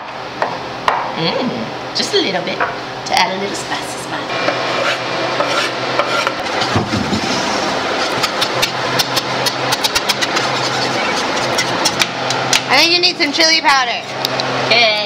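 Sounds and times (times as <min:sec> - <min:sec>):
spatula stirring and scraping: 0:04.4 - 0:12.4.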